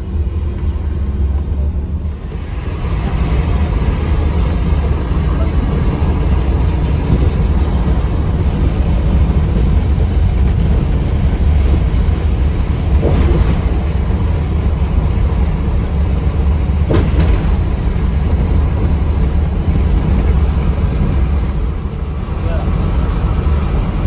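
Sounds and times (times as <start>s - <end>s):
diesel engine drone: 0.0s - 24.0s
tyre and road noise: 0.0s - 24.0s.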